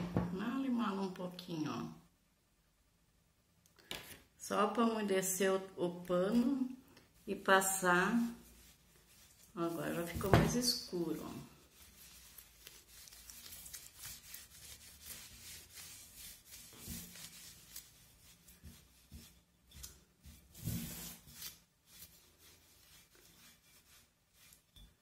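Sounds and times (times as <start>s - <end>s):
damp cloth wiping paper: 7.2s - 25.0s.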